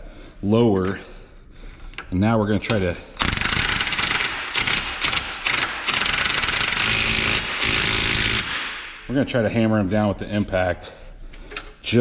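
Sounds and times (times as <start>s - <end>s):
impact wrench hammering: 3.2s - 9.1s.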